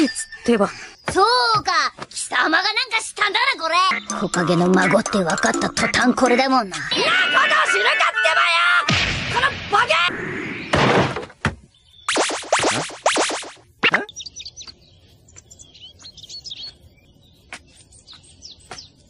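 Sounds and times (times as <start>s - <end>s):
birds chirping: 0.0s - 7.2s, 11.6s - 12.3s, 13.6s - 19.0s
thump: 10.7s - 11.6s
cartoon hit: 12.1s - 14.1s.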